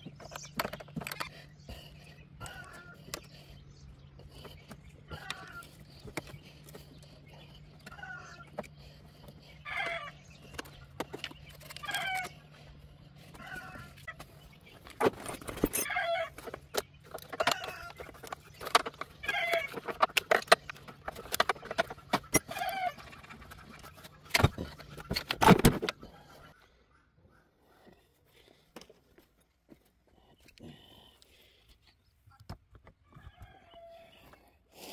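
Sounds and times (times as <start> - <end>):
hens clucking: 0.0 - 27.6.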